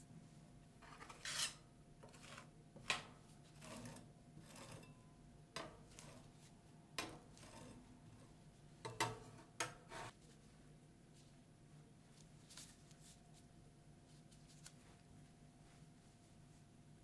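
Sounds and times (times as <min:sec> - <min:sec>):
metal spatula scraping cold pan: 0:00.8 - 0:02.6, 0:03.4 - 0:06.4, 0:07.0 - 0:08.3.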